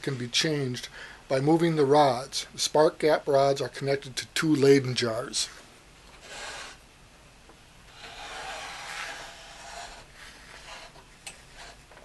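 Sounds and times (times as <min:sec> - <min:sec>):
wooden base scraping across desk: 0:07.9 - 0:12.0.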